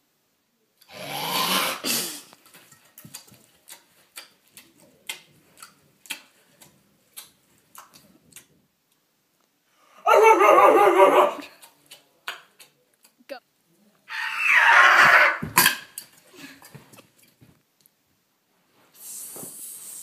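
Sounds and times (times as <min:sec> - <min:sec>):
people eating lettuce: 0:00.8 - 0:09.0, 0:11.3 - 0:17.4
wet chomping smacks: 0:03.0 - 0:08.5.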